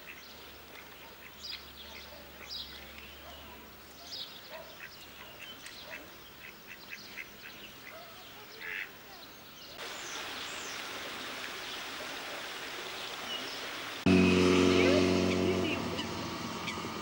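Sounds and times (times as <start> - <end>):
ducks quacking: 4.6 - 9.0, 14.1 - 17.0
steady hiss: 9.8 - 14.8.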